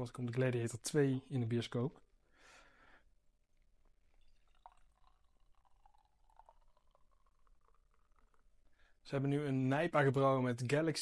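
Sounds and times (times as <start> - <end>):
beer trickling into glass: 3.3 - 9.1.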